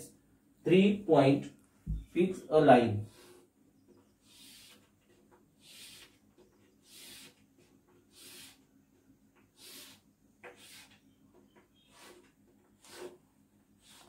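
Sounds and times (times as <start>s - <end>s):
chalk strokes on chalkboard: 4.2s - 4.9s, 5.6s - 6.2s, 6.8s - 7.4s, 8.0s - 8.7s, 9.5s - 11.0s, 11.8s - 13.2s, 13.8s - 14.0s.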